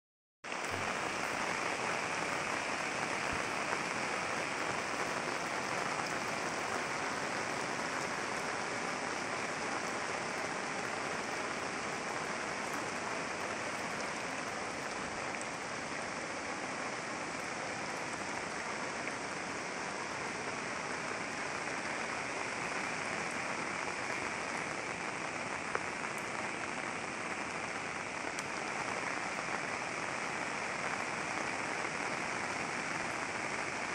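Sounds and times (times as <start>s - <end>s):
heavy rain pouring: 0.4s - 33.9s.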